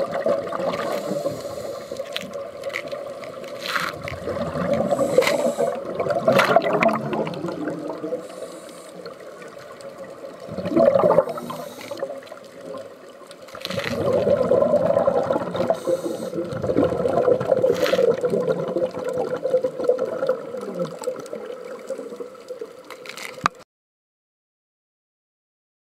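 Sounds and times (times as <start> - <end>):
exhaled bubbles underwater: 0.0 - 22.9
murky underwater hum: 0.0 - 23.6.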